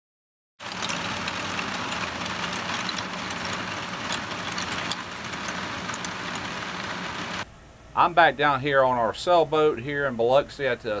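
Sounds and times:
rain on a boat cabin: 0:00.6 - 0:07.4
low steady hum: 0:00.7 - 0:11.0.

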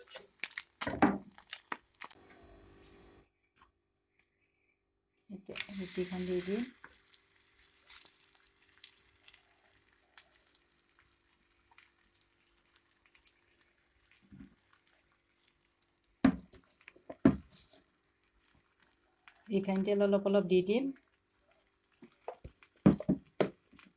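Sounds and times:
bread crackling on hot griddle: 0:00.0 - 0:02.2, 0:05.5 - 0:23.9.

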